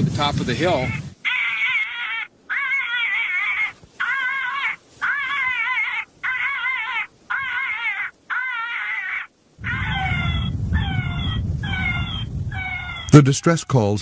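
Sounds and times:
electronic animal distress wails: 1.3s - 13.6s
low rumble: 9.6s - 12.8s.

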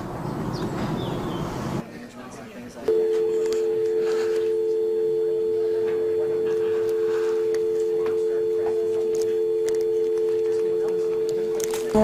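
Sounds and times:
telephone dial tone: 2.9s - 12.0s.

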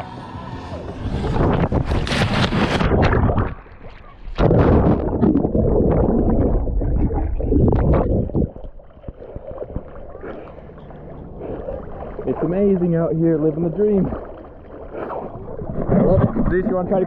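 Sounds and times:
water sloshing: 0.0s - 17.0s
underwater churning and bubbling: 0.7s - 17.0s
loud splash into water: 1.2s - 8.5s.

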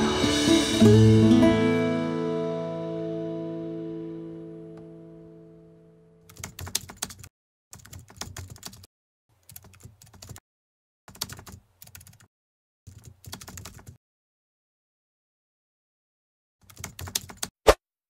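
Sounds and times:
guitar tune: 0.0s - 6.2s.

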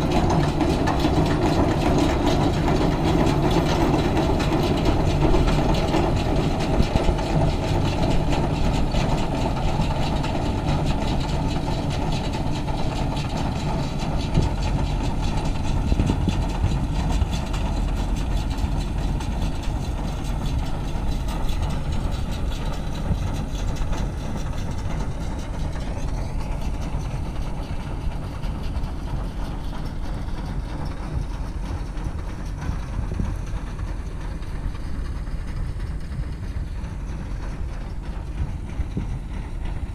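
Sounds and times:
tractor engine running: 0.0s - 39.9s.

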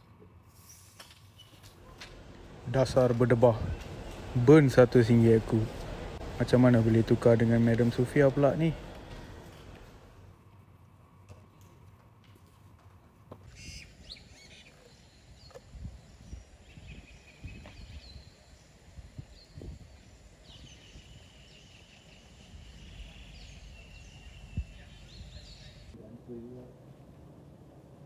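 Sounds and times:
low rumbling background: 1.9s - 10.3s
bird trilling call: 13.5s - 14.8s
birds chirping and calling: 13.5s - 18.8s, 20.3s - 26.0s.

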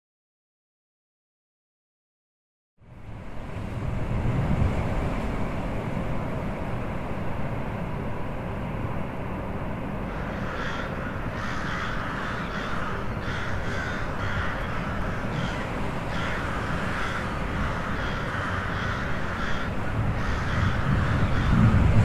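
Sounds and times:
steady low rumble: 2.9s - 22.0s
birds calling harshly: 10.1s - 21.9s.

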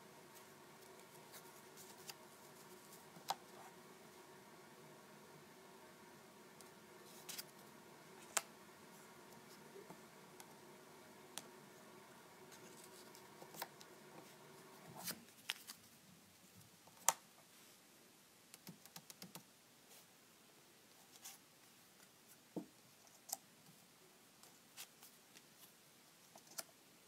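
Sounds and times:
paper rustling: 7.0s - 8.5s.

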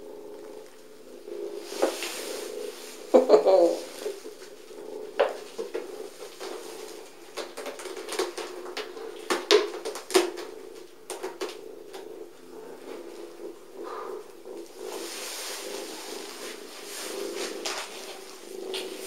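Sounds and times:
low drone: 10.5s - 19.0s.

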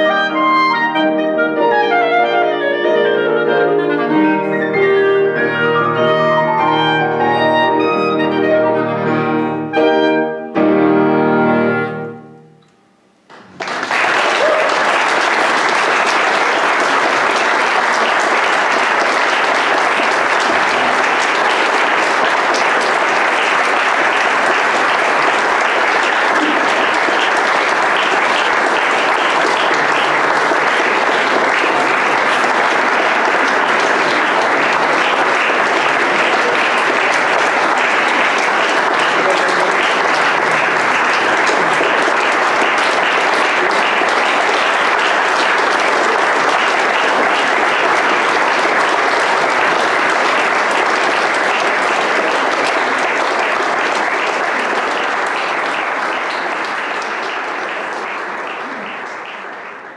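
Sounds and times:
clarinet and piano chords: 0.0s - 13.0s
audience applause: 13.3s - 59.9s.

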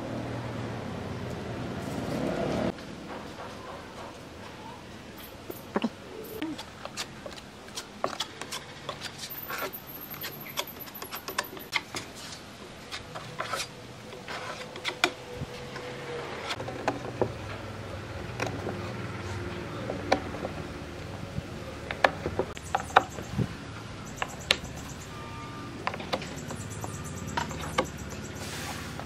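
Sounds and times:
wooden blocks clicking and tapping: 21.9s - 23.4s, 24.1s - 25.1s, 25.8s - 28.3s.

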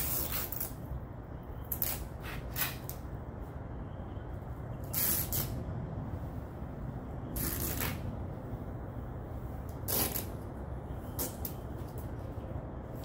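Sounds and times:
masking tape ripping off roll: 0.0s - 0.8s, 1.7s - 3.0s, 4.8s - 5.6s, 7.4s - 8.0s, 9.7s - 10.4s, 11.2s - 11.6s
steady low hum: 0.0s - 13.0s.

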